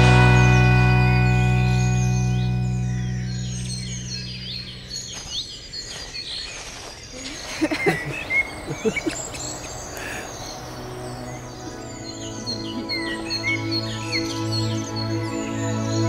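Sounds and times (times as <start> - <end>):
music track: 0.0 - 4.9, 9.4 - 16.0
small birds chirping and singing: 0.0 - 16.0.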